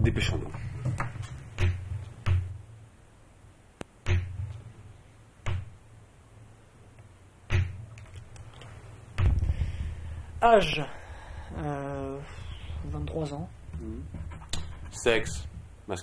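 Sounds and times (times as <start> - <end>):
dull booming thumps: 9.2 - 10.4.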